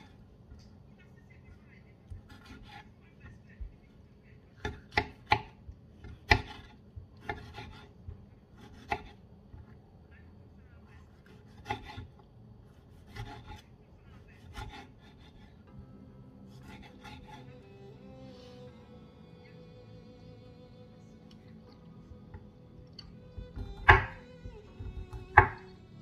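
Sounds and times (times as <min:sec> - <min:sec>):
knife chopping on wooden board: 0:02.1 - 0:02.9, 0:04.6 - 0:09.2, 0:11.2 - 0:12.1, 0:12.9 - 0:13.7, 0:14.4 - 0:15.5, 0:16.6 - 0:17.4, 0:23.3 - 0:25.7.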